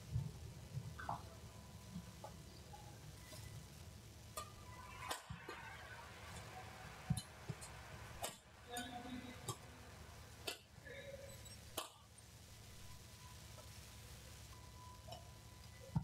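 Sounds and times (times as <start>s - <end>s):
rackets hitting shuttlecock: 4.4s - 5.7s, 7.0s - 9.6s, 11.8s - 12.0s.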